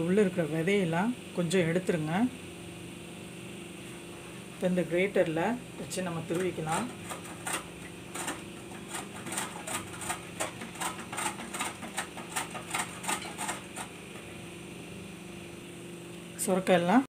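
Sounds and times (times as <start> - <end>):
gourd rasping on metal grater: 6.2 - 14.3.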